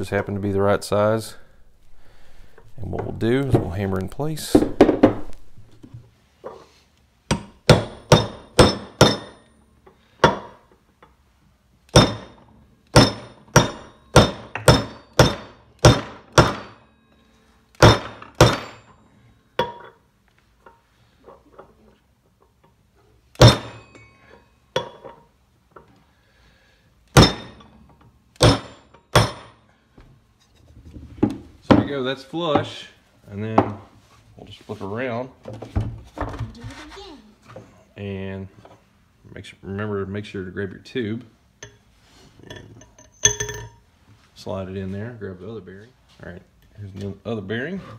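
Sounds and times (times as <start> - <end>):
hammer striking metal socket: 42.5 - 43.8.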